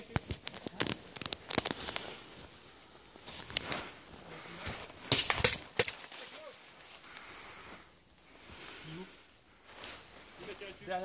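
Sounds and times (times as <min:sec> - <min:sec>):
sharp cracks and knocks: 0:00.0 - 0:02.0, 0:05.0 - 0:06.2
rustling and crunching in dry leaves: 0:00.0 - 0:11.0.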